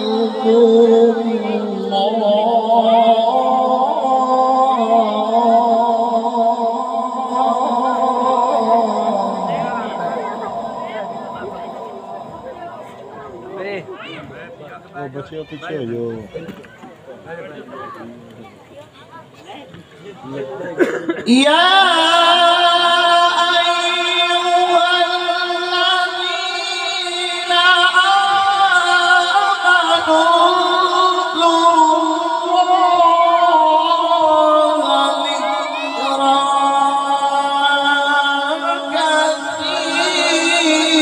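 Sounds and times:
man chanting recitation: 0:00.0 - 0:13.8, 0:20.2 - 0:41.0.

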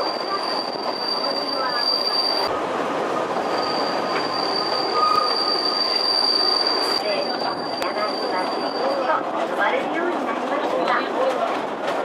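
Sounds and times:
high wheel squeal: 0:00.0 - 0:02.5, 0:03.4 - 0:09.2
train wheels on rail: 0:00.0 - 0:12.0.

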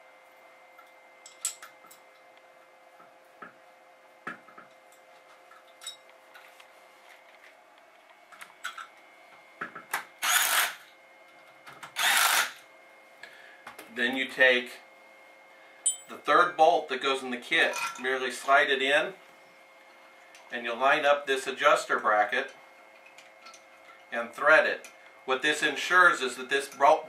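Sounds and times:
tools clicking and tapping: 0:00.8 - 0:02.3, 0:04.3 - 0:06.1, 0:15.9 - 0:16.2
cordless power driver spinning: 0:10.2 - 0:10.8, 0:11.8 - 0:12.6.

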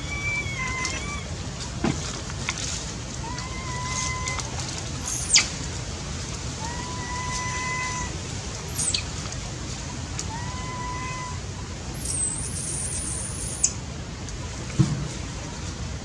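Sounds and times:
monkey whining calls: 0:00.0 - 0:01.3, 0:03.2 - 0:04.4, 0:05.0 - 0:05.5, 0:06.6 - 0:09.1, 0:10.3 - 0:11.4
young monkey squealing: 0:00.0 - 0:01.3, 0:05.0 - 0:05.5, 0:06.6 - 0:08.1, 0:08.7 - 0:09.1, 0:12.0 - 0:13.7
constant hiss: 0:00.0 - 0:16.0.

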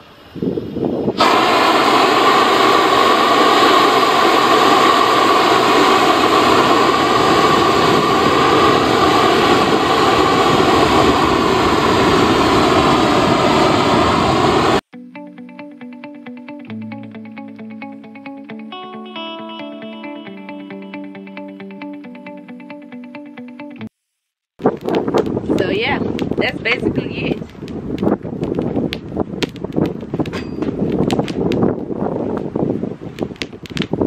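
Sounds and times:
propane torch burning: 0:00.0 - 0:14.8, 0:24.6 - 0:34.0.

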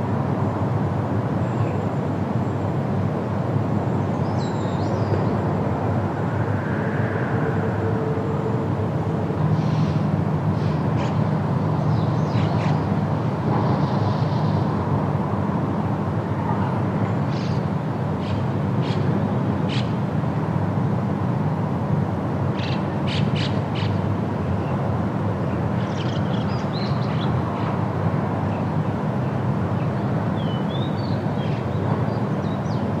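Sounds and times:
low rumbling noise: 0:05.0 - 0:16.9.

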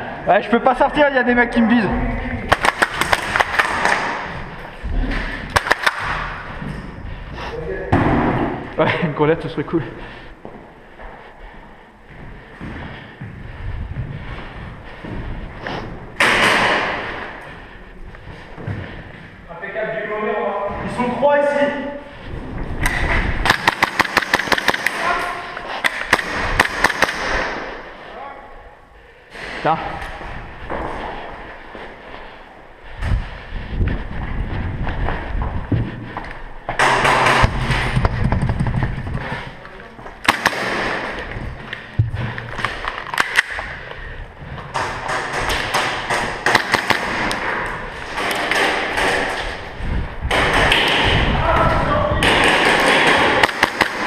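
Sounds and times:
airsoft pistol firing: 0:05.5 - 0:06.2, 0:23.4 - 0:25.1, 0:25.8 - 0:27.7, 0:40.2 - 0:41.1, 0:45.8 - 0:47.4, 0:52.2 - 0:54.0
running footsteps on tiles: 0:10.0 - 0:16.2, 0:16.8 - 0:19.4, 0:30.1 - 0:40.2.

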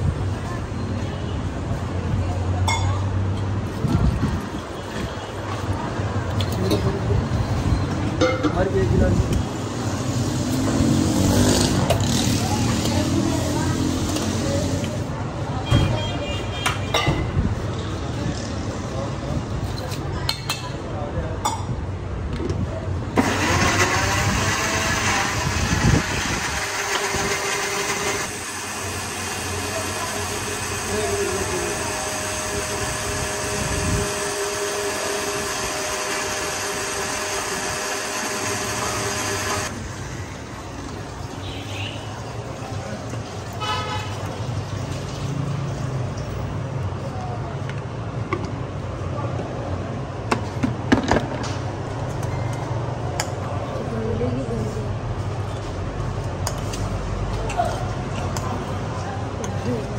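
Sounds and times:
traffic noise: 0:00.0 - 0:59.9
electric blender running: 0:23.2 - 0:39.8.

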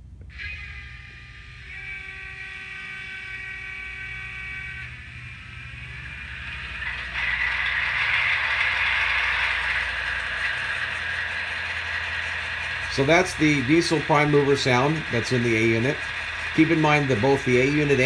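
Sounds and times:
steady tones: 0:00.0 - 0:18.0
model diesel engine sound: 0:00.6 - 0:18.0.

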